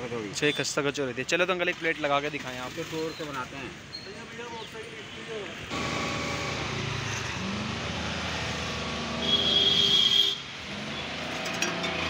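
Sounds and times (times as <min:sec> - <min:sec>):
vehicle engines passing: 0:05.4 - 0:12.0.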